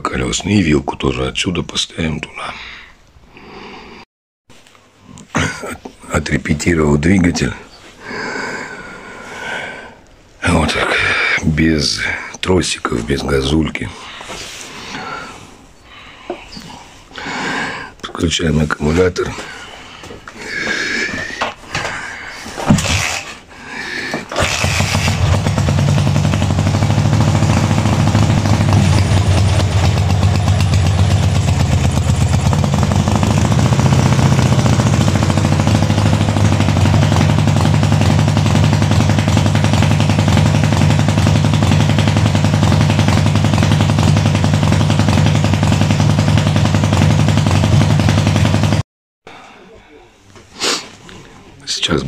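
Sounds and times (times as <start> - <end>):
motorcycle engine starting and running: 24.3 - 48.8.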